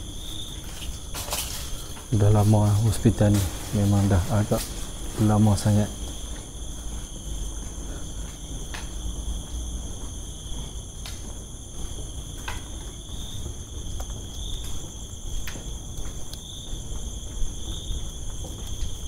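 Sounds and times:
insects chirping: 0.0 - 19.0.

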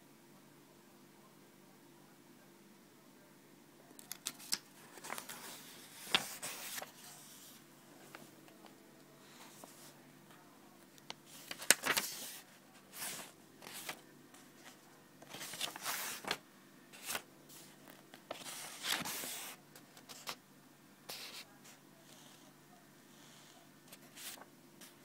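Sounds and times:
book pages rustling: 4.0 - 8.3, 11.0 - 16.4, 17.0 - 20.4, 23.9 - 25.0.

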